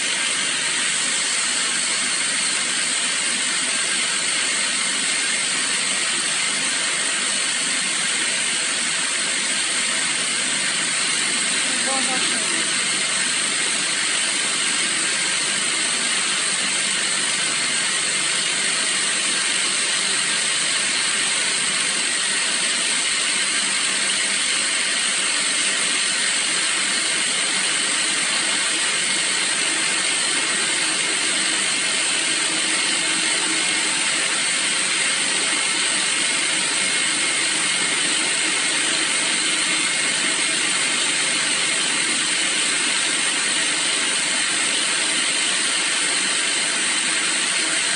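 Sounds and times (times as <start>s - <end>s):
pressure pump running: 0.0s - 47.9s.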